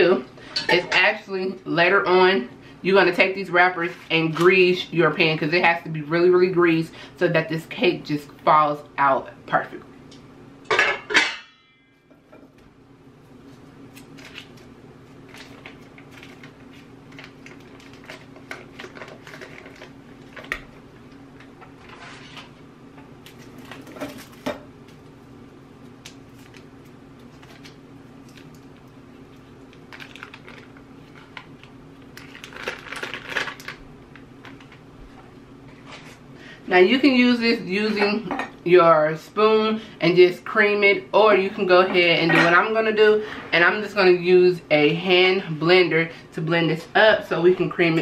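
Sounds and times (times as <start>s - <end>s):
steady low hum: 0.0s - 48.0s
paper and plastic rustling: 13.5s - 20.7s, 21.5s - 22.6s, 26.3s - 34.8s.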